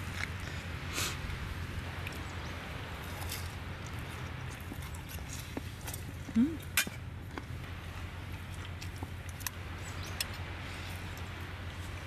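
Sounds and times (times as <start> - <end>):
low background hum: 0.0 - 12.0
person humming: 6.3 - 6.6.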